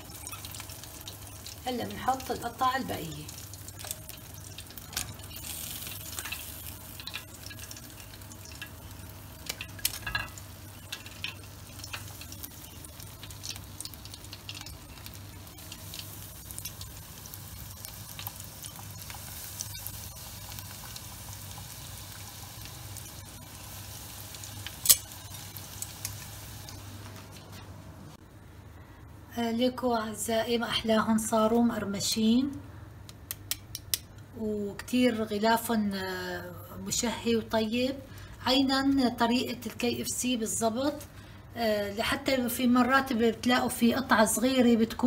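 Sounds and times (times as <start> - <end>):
chicken deep-frying in oil: 0.0 - 27.6.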